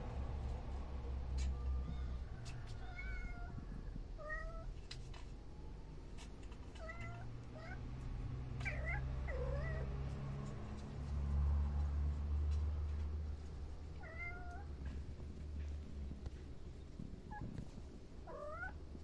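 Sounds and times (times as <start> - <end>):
low steady rumble: 0.0 - 19.0
kittens mewing: 8.5 - 9.9.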